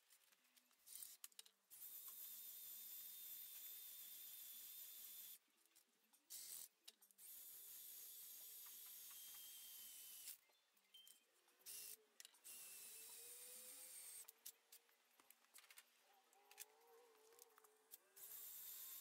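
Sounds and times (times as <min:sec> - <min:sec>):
high-pitched drill whir: 0:06.3 - 0:10.4, 0:11.7 - 0:14.2, 0:18.2 - 0:19.0.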